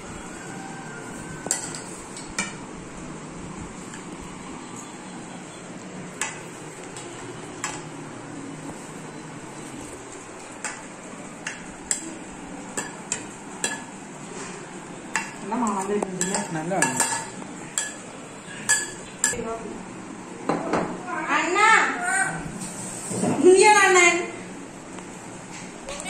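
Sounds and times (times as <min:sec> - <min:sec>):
spoon and plates clinking: 0:01.4 - 0:02.6, 0:10.6 - 0:14.0, 0:15.2 - 0:19.4.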